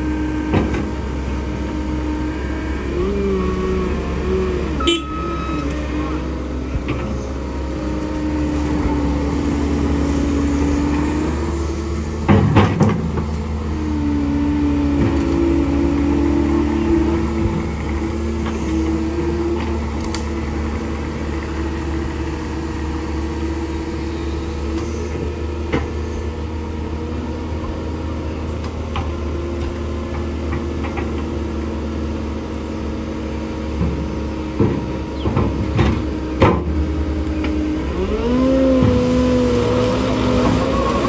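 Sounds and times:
diesel engines running: 0:00.0 - 0:41.0
engine revving up: 0:37.2 - 0:41.0.

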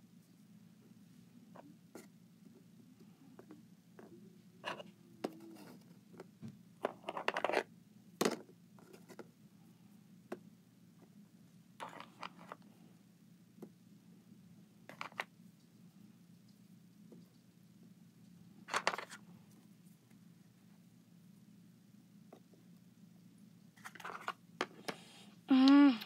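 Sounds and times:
plastic toys clicking and scraping: 0:06.8 - 0:07.7, 0:11.8 - 0:12.6, 0:14.9 - 0:15.3, 0:18.7 - 0:19.2, 0:23.8 - 0:25.0.

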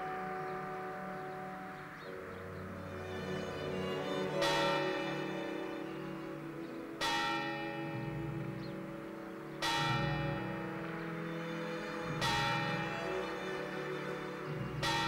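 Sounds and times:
low sustained tones: 0:00.0 - 0:15.0
large bell tolling: 0:09.6 - 0:11.1, 0:12.1 - 0:13.4.

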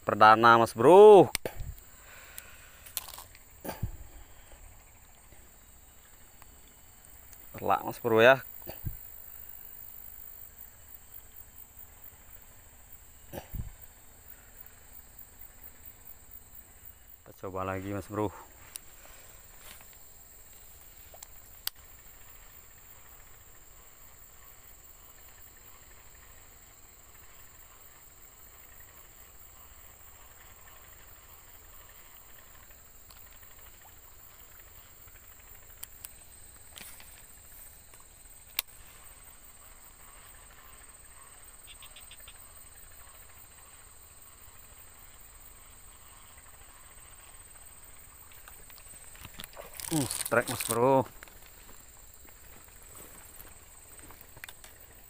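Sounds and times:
high-pitched insect drone: 0:00.0 - 0:55.0
sharp clicks: 0:37.9 - 0:38.8.

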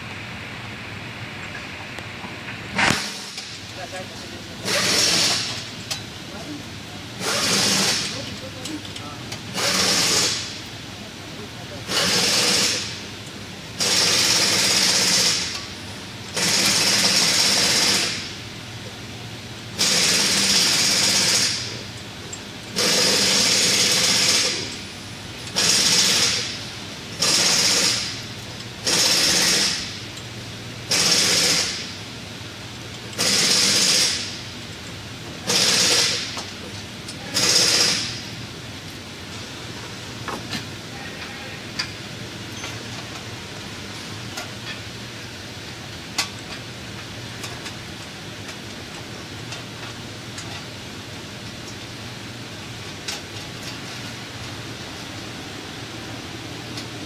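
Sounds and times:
powered wrench bursts: 0:04.6 - 0:05.7, 0:07.2 - 0:08.2, 0:09.5 - 0:10.6, 0:11.9 - 0:13.0, 0:13.8 - 0:15.6, 0:16.3 - 0:18.3, 0:19.8 - 0:21.7, 0:22.7 - 0:24.8, 0:25.5 - 0:28.2, 0:28.8 - 0:30.0, 0:30.9 - 0:32.0, 0:33.2 - 0:34.4, 0:35.4 - 0:36.4, 0:37.3 - 0:38.2.

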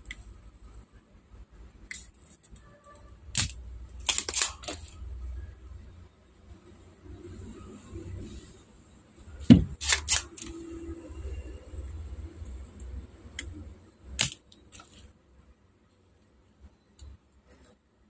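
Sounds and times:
desoldering pump snapping: 0:03.3 - 0:04.9, 0:14.2 - 0:14.9.

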